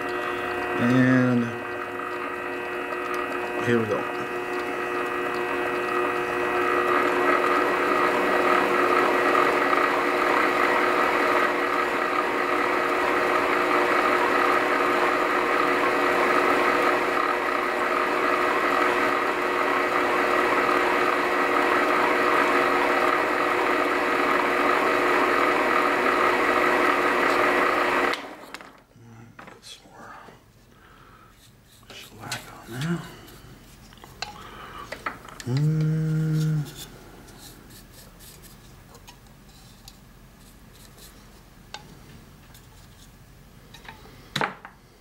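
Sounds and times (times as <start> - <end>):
lathe humming and whining: 0.0 - 28.6, 31.3 - 38.6.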